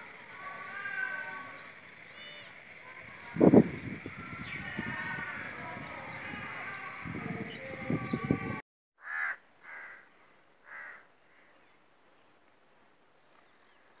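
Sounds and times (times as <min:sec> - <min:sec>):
distant animal calls: 0:00.0 - 0:11.5
jumble of outdoor sound: 0:00.0 - 0:14.0
wind on microphone: 0:03.0 - 0:08.6.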